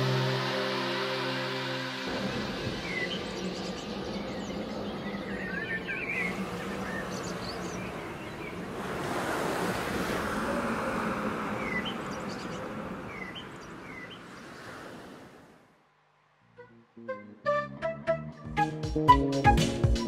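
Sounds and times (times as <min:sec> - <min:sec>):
rushing ambient noise: 0:00.0 - 0:14.2
bird chirps: 0:11.6 - 0:14.3.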